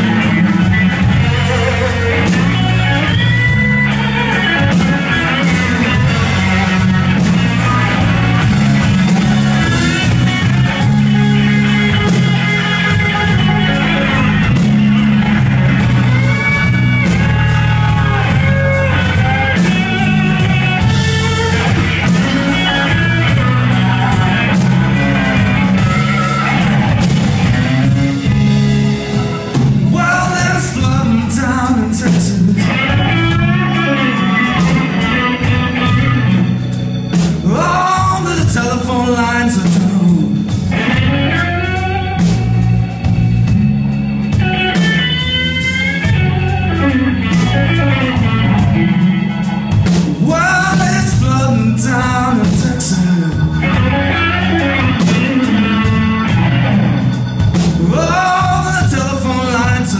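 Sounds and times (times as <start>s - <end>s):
blues band playing: 0.0s - 59.9s
electric guitar: 0.0s - 59.9s
person singing: 28.9s - 36.3s, 37.4s - 41.8s, 49.8s - 56.3s, 57.6s - 59.9s.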